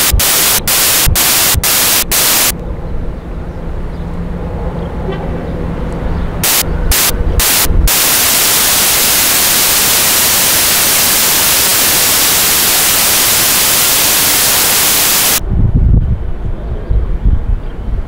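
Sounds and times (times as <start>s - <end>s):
loud static hiss: 0.0s - 2.6s, 6.4s - 15.4s.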